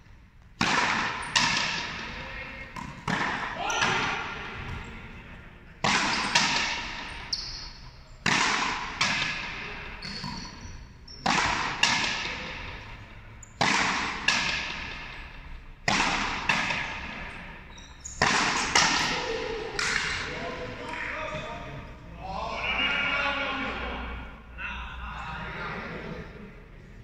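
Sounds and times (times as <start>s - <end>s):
ball striking rackets and wall: 0.4s - 5.0s, 5.8s - 20.3s
hall echo: 0.6s - 7.3s, 18.2s - 27.0s.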